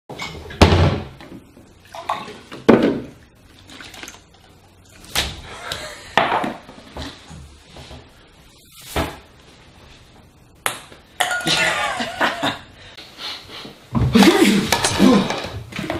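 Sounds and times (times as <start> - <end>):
cabinet door banging shut: 0.6 - 1.2.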